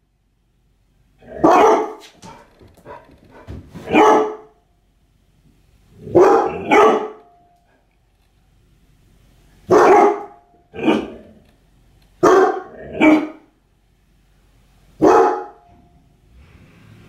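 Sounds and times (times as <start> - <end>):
dogs barking: 1.4 - 4.6, 6.1 - 7.3, 9.7 - 11.2, 12.2 - 13.5, 15.0 - 15.6.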